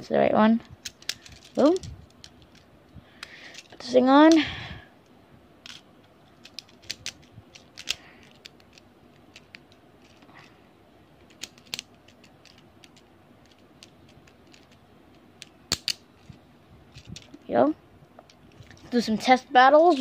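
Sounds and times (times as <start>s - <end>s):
plastic clicks of toy parts: 0.8s - 2.6s, 6.4s - 10.3s, 11.2s - 16.3s.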